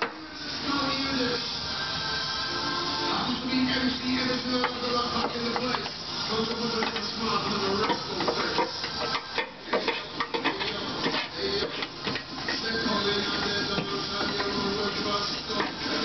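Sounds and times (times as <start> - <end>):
tool scraping sheet metal: 5.2 - 12.7.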